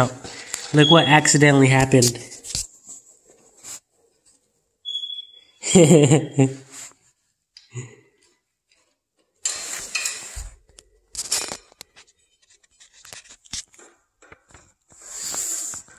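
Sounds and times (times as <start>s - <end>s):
rustling and scraping: 1.9s - 4.7s, 8.6s - 15.9s.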